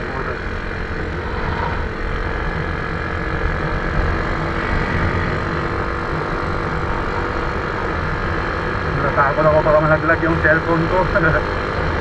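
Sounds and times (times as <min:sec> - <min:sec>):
wind rushing over microphone: 0:00.0 - 0:08.8
scooter engine cruising: 0:00.0 - 0:12.0.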